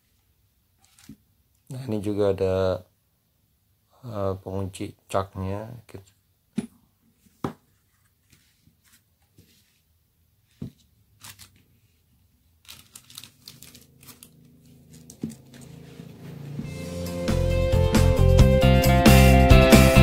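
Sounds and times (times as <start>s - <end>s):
plastic wrapping rustling: 11.1s - 12.0s, 12.6s - 16.4s.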